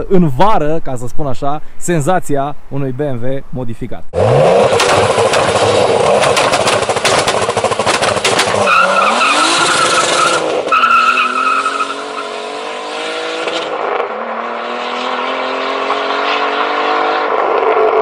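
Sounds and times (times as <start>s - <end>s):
car engine accelerating through gears: 4.2s - 18.0s
tyres squealing: 4.7s - 12.3s.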